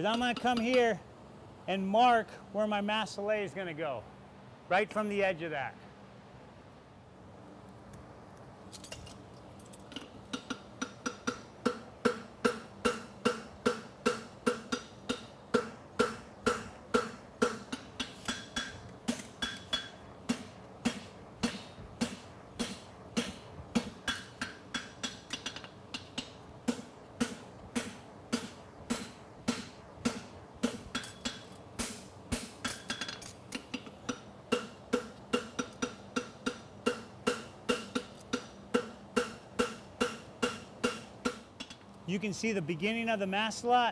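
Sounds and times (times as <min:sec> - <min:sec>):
hammer striking metal on anvil: 0:10.3 - 0:41.8.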